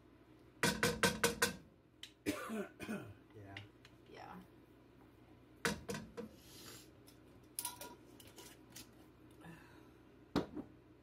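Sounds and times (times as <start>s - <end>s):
cup knocking against frying pan: 0.6s - 1.6s, 5.6s - 6.3s.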